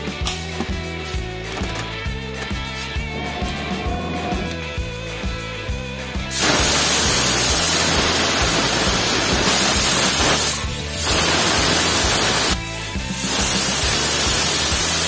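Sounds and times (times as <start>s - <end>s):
pressure cooker steam hissing: 6.3s - 15.0s.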